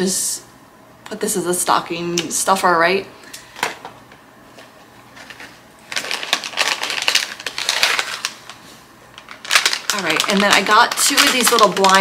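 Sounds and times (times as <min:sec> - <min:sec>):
plastic packaging crinkling: 0:05.1 - 0:12.0.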